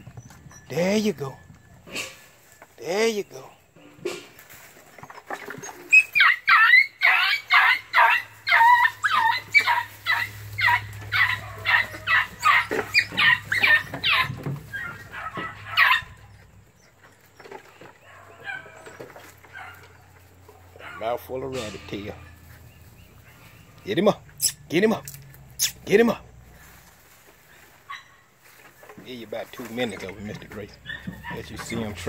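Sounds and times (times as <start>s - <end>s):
puppies yelping: 4.9s - 26.6s, 27.4s - 28.4s, 29.5s - 32.0s.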